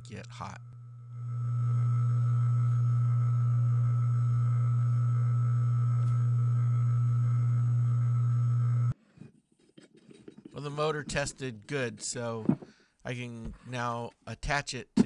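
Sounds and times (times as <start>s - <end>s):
electric motor humming: 0.0s - 9.0s.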